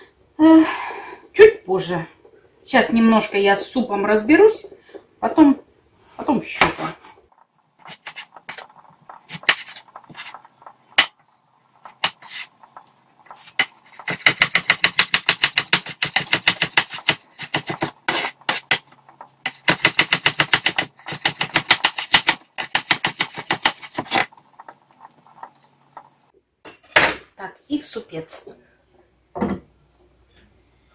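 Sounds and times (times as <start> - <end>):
knife chopping on wooden board: 13.6 - 18.8, 19.5 - 24.3.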